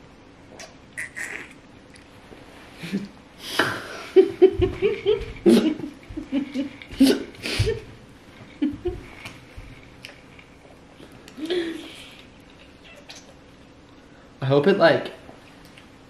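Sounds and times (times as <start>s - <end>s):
person giggling: 2.8s - 9.2s, 11.4s - 12.1s.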